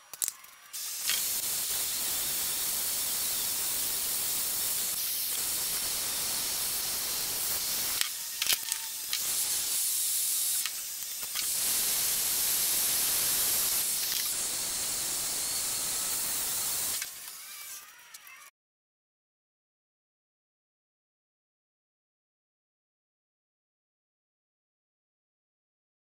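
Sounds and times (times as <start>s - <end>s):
torch clicks: 0.1s - 2.8s, 4.5s - 14.5s
gas torch hissing: 0.7s - 17.7s.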